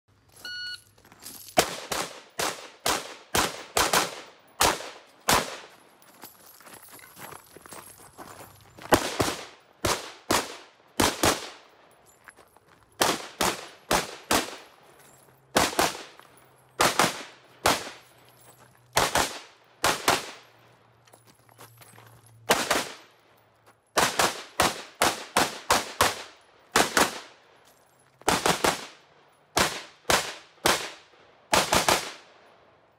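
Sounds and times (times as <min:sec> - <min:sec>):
rifle shots: 0:01.6 - 0:05.7, 0:08.9 - 0:11.7, 0:13.0 - 0:14.7, 0:15.5 - 0:16.2, 0:16.8 - 0:18.0, 0:19.0 - 0:20.5, 0:22.5 - 0:23.1, 0:24.0 - 0:27.4, 0:28.3 - 0:29.0, 0:29.6 - 0:32.3.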